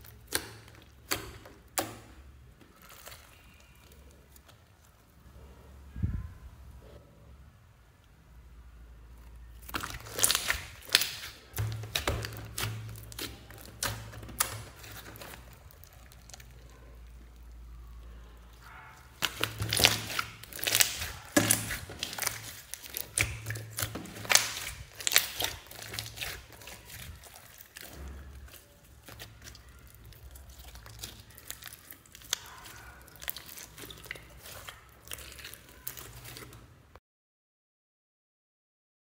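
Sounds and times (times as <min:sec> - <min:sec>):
slime crackling pops: 0:09.6 - 0:16.7, 0:19.1 - 0:36.6.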